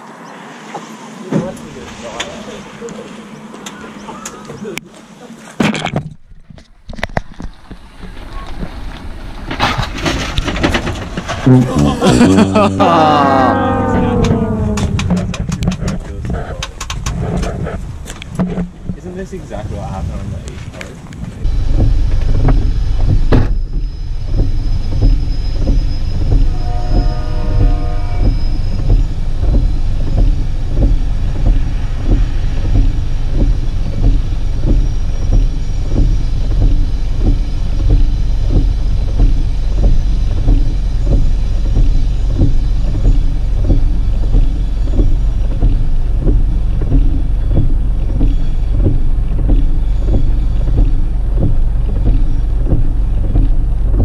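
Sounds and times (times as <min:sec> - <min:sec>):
vehicle engine rumbling: 0:00.0 - 0:54.0
brief pitched sound: 0:11.4 - 0:15.6.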